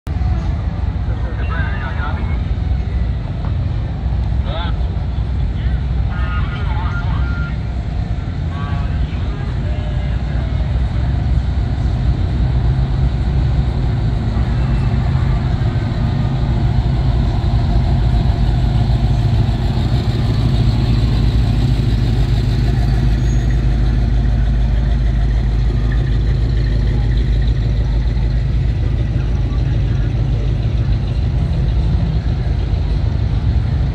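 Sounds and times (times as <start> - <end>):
car engine rumbling: 0.0 - 33.9.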